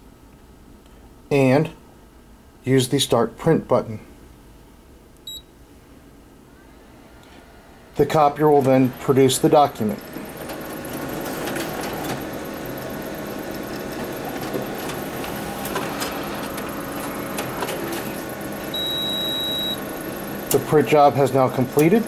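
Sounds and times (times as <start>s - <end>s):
high beep: 5.3s - 5.5s, 18.7s - 19.8s
copier whirring and clicking: 8.0s - 22.0s.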